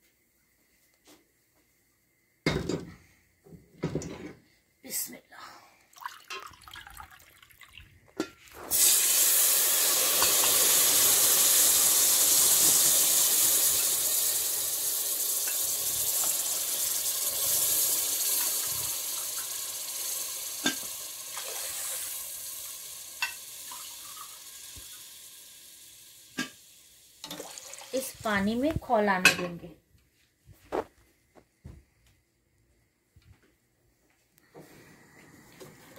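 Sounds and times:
water sizzling in hot oil: 8.5 - 29.1.

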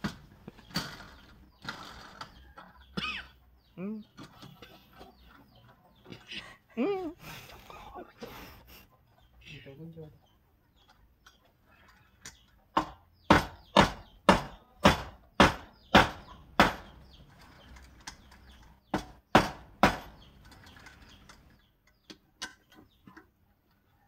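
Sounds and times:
hard strikes on wooden log: 12.7 - 17.0, 18.9 - 20.2.

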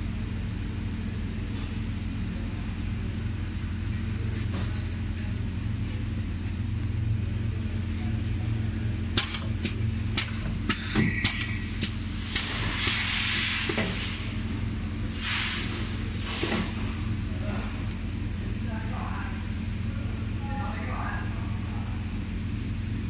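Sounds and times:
low machine hum: 0.0 - 23.0
sharp mechanical clacks: 9.1 - 12.5
compressed air hiss: 11.5 - 17.0.

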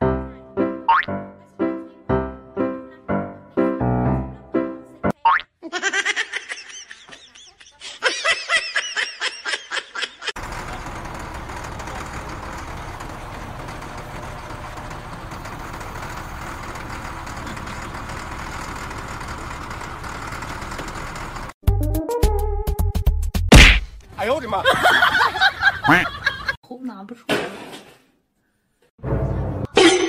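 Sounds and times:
diesel engine idling: 10.4 - 21.6.

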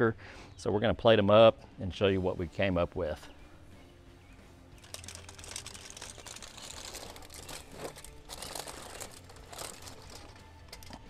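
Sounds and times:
aluminium foil crinkling: 4.8 - 11.0.

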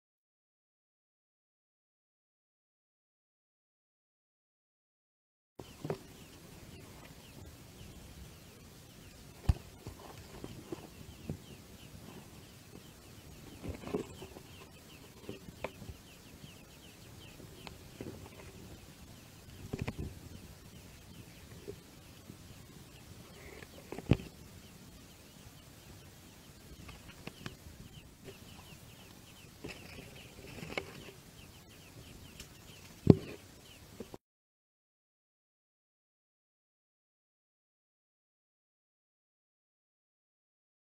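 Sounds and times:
nestling birds peeping: 5.6 - 34.2.

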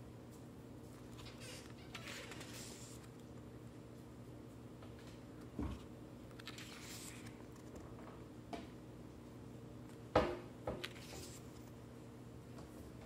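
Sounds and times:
paper rustling: 1.0 - 3.2, 6.3 - 7.8, 10.9 - 11.8
page turning: 2.0 - 3.2, 6.3 - 7.8, 10.8 - 11.8.

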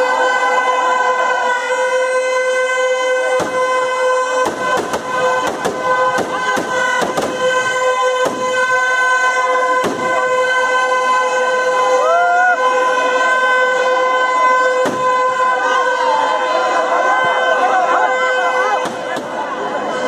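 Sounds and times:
firecrackers bursting: 3.2 - 8.9, 9.7 - 10.6, 14.7 - 15.5, 18.8 - 19.6.

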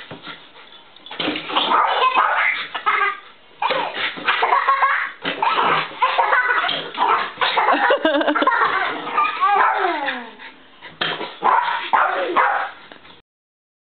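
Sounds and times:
small dog barking and yipping: 1.6 - 10.0, 11.4 - 12.8.

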